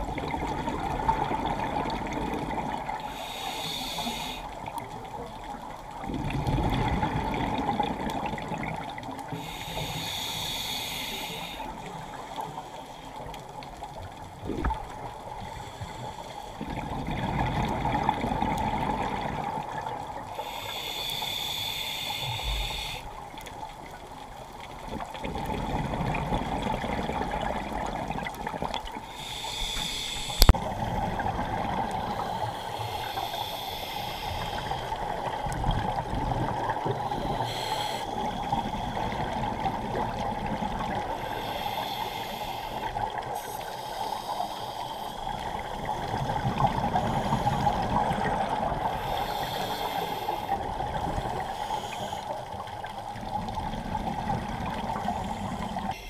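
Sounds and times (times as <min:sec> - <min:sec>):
regulator hissing inhale: 0:03.0 - 0:05.0, 0:09.2 - 0:13.7, 0:15.3 - 0:16.8, 0:20.3 - 0:23.2, 0:29.0 - 0:30.6, 0:32.0 - 0:35.5, 0:36.5 - 0:39.4, 0:41.0 - 0:53.0
exhaled bubbles rushing: 0:06.0 - 0:09.0, 0:14.4 - 0:15.2.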